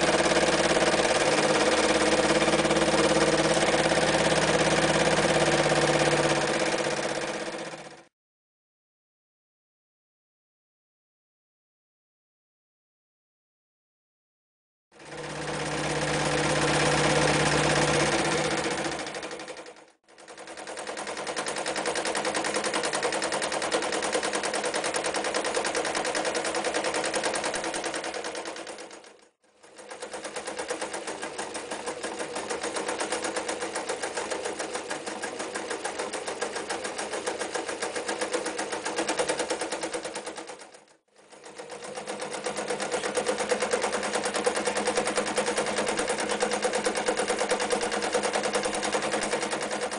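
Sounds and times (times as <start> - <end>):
motor hum: 0.0 - 7.2
sewing machine stitching rapidly: 0.0 - 8.1, 15.0 - 49.9.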